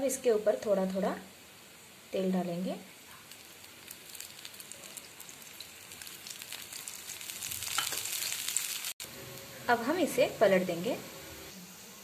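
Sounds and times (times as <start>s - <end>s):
oil sizzling in a pan: 0.0s - 12.0s.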